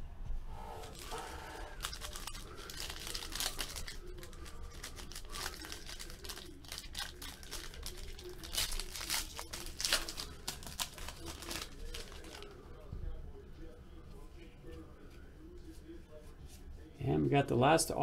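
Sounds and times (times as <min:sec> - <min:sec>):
foil wrapper tearing and crinkling: 0:00.8 - 0:12.6.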